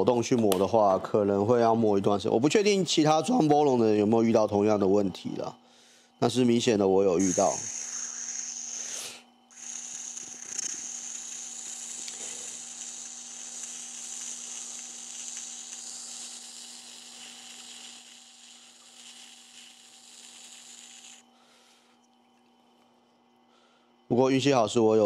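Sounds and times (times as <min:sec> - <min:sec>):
grinder motor hum: 0:07.2 - 0:21.3.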